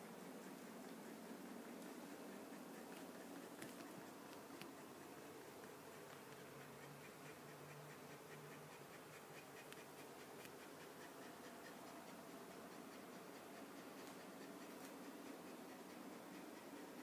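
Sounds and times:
light ticks: 5.6s - 16.8s.

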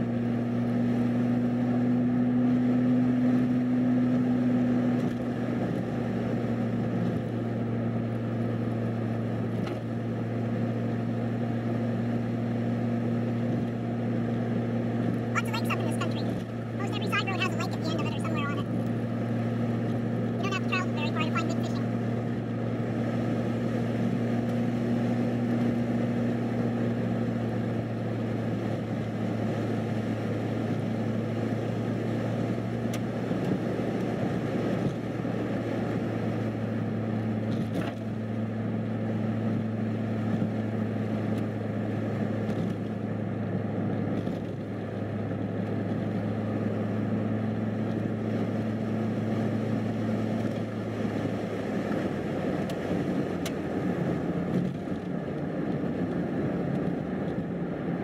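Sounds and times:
vehicle engine hum: 0.0s - 58.0s.

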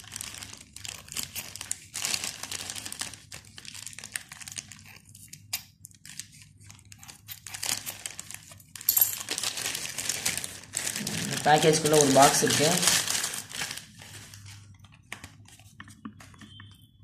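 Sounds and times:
plastic bag crinkling: 0.0s - 4.9s, 6.1s - 15.5s.

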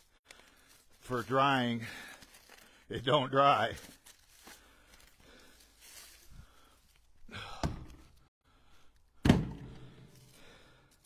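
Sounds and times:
firewood thudding into truck bed: 9.2s - 10.0s.

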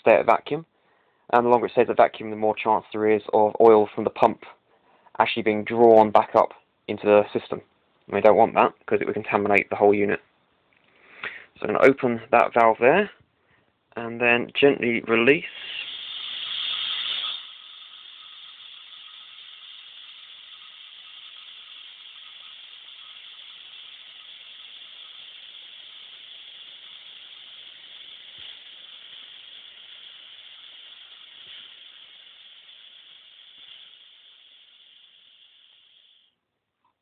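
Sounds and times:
air hissing through valve: 15.1s - 36.4s.

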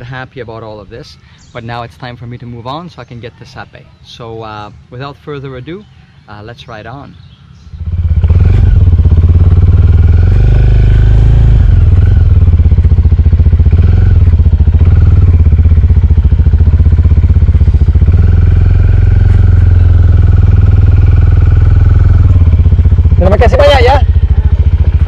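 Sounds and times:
motorcycle engine running: 7.1s - 25.0s.

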